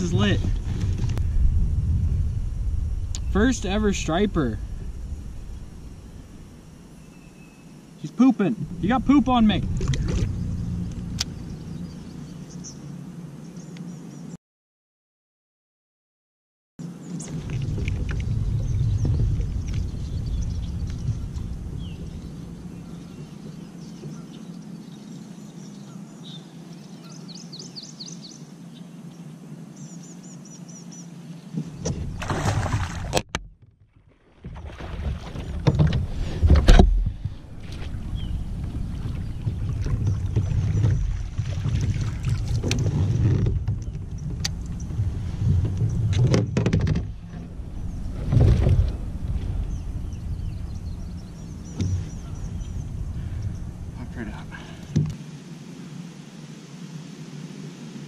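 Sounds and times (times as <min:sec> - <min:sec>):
low thumps: 0:00.0 - 0:07.0, 0:08.6 - 0:12.0, 0:17.4 - 0:22.9, 0:31.6 - 0:55.2
rustles: 0:00.0 - 0:07.8, 0:34.3 - 0:58.0
steady low rumble: 0:00.0 - 0:13.2, 0:17.0 - 0:25.7, 0:34.8 - 0:56.2
birds chirping faintly: 0:03.0 - 0:14.4, 0:16.9 - 0:33.0, 0:37.4 - 0:55.2.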